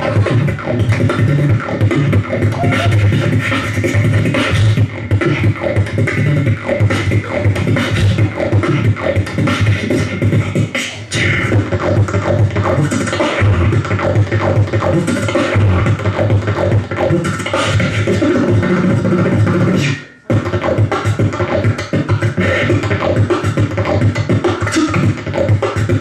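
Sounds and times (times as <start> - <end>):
person beatboxing into a microphone: 0.0 - 26.0.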